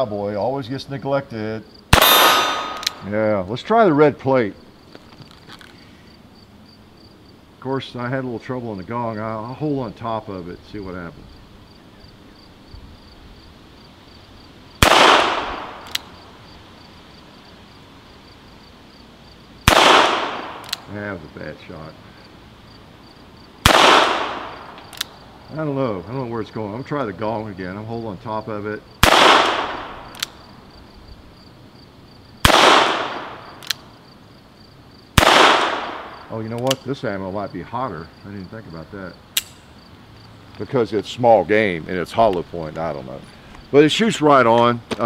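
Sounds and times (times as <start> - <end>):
revolver shot with echo: 2.0 - 3.0
sharp click: 2.0 - 3.0, 15.8 - 16.1, 20.6 - 20.9, 24.7 - 25.1, 30.1 - 30.4, 33.5 - 33.9, 36.5 - 36.9, 39.4 - 39.7.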